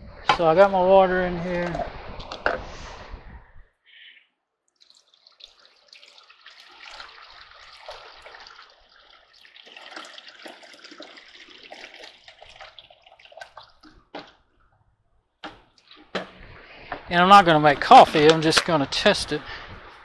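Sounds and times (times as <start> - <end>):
water pouring into coffee maker: 4.8 - 14.0.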